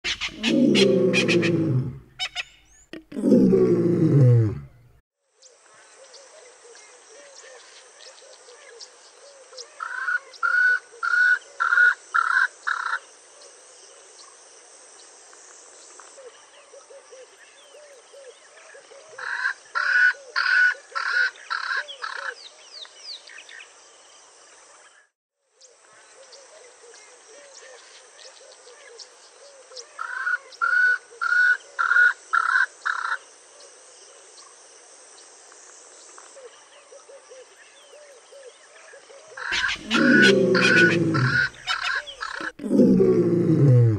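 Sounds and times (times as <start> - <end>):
spurfowl calling: 39.4 - 42.6.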